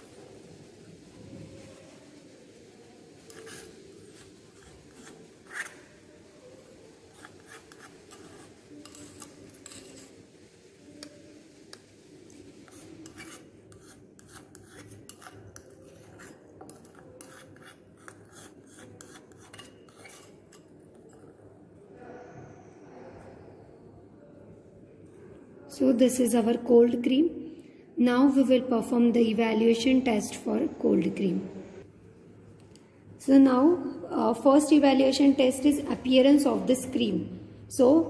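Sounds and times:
spatula scraping dish and jar: 3.3 - 5.8, 7.1 - 10.2, 12.7 - 21.2.

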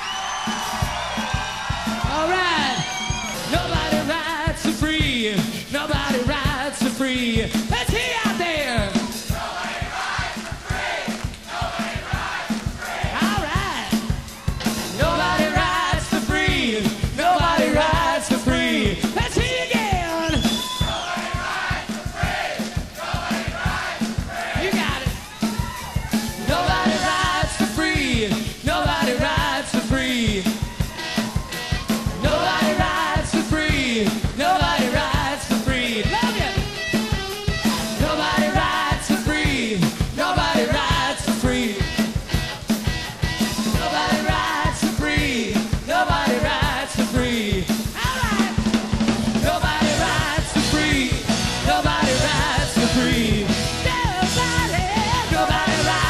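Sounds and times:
driving drum beat: 0.0 - 56.0
rock band playing live: 0.0 - 56.0
man singing: 2.1 - 9.2, 13.2 - 14.1, 14.9 - 20.7, 24.5 - 25.2, 26.4 - 30.7, 32.2 - 36.8, 37.6 - 42.2, 43.7 - 48.7, 49.3 - 56.0.

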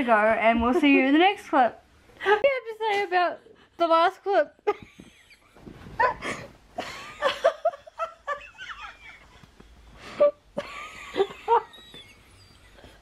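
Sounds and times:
woman laughing: 4.6 - 9.5, 10.1 - 13.0.

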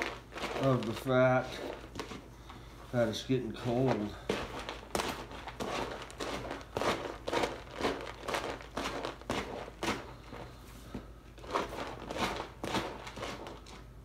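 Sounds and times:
hands crinkling packaging: 0.0 - 2.2, 3.8 - 10.5.

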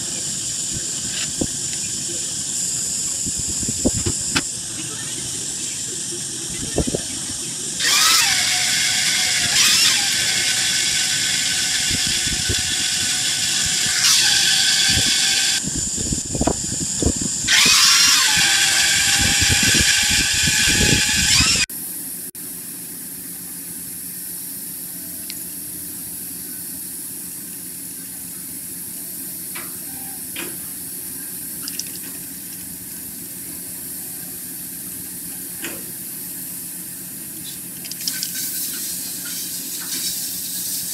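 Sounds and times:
steady machine hum: 0.0 - 40.9
shrill squealing whine of lathe tool: 7.4 - 21.7.

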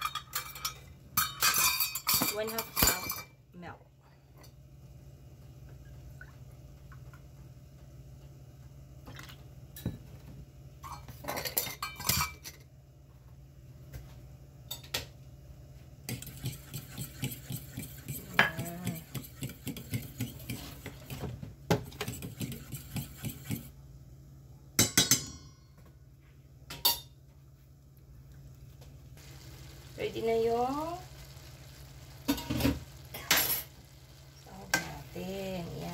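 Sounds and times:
whisk clinking in steel bowl: 16.1 - 20.6.

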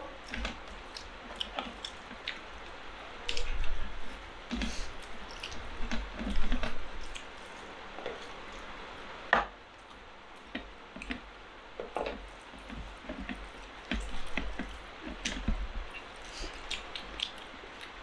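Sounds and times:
wet chewing and lip-smacking: 0.2 - 8.8, 12.5 - 18.0.

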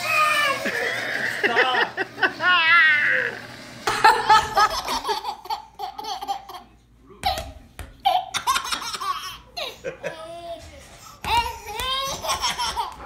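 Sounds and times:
baby giggling: 4.1 - 10.4, 11.9 - 13.0.

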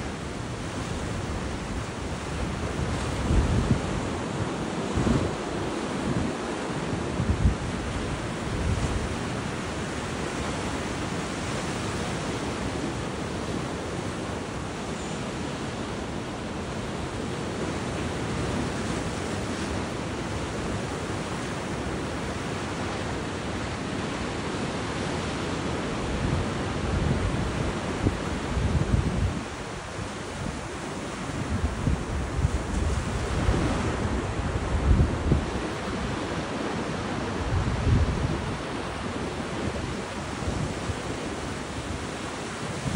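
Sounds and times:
wind buffeting microphone: 0.0 - 10.3, 26.1 - 42.9
surf washing up a beach: 0.0 - 42.9.

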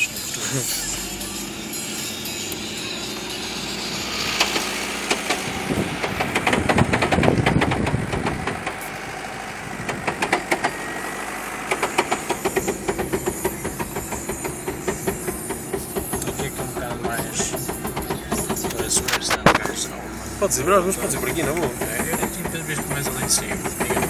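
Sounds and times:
car engine running: 0.0 - 24.0
knocks and rattles: 4.4 - 8.8, 9.7 - 10.8, 11.7 - 19.9, 20.9 - 24.0.

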